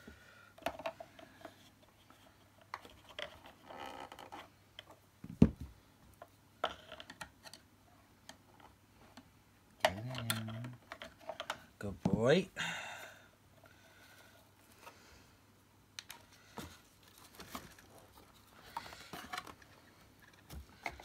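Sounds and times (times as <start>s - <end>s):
small clicks and scrapes: 0.6s - 5.0s.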